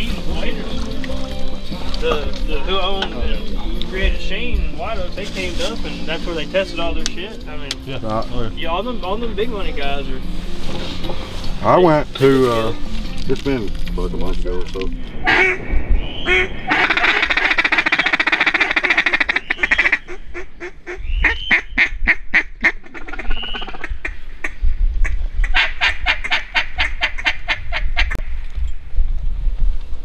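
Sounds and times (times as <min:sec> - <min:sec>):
duck call quacking and chatter: 0:15.3 - 0:15.6, 0:16.3 - 0:28.2.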